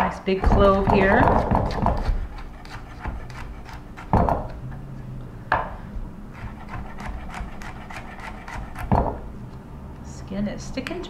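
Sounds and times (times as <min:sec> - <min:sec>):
knife chopping on wooden board: 0:00.4 - 0:04.6, 0:06.4 - 0:09.2.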